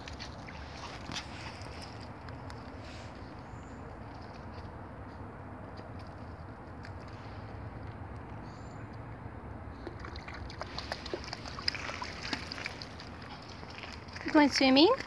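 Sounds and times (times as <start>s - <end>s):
water splashing and sloshing: 0.0s - 4.8s, 9.6s - 15.0s.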